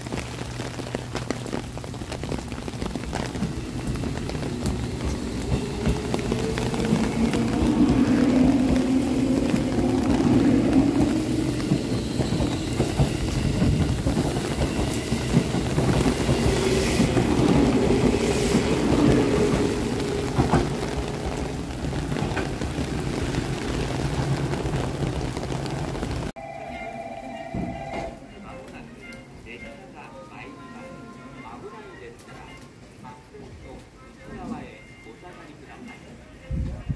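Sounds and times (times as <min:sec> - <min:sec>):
train wheel rumble: 0:00.0 - 0:26.3
rain hissing: 0:00.0 - 0:26.4.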